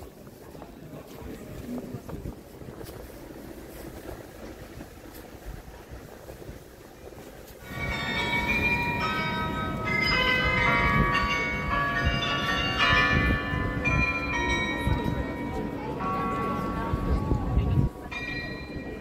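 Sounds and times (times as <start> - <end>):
crowd and street noise: 0.0 - 19.0
bells chiming a tune: 7.6 - 17.2, 18.1 - 19.0.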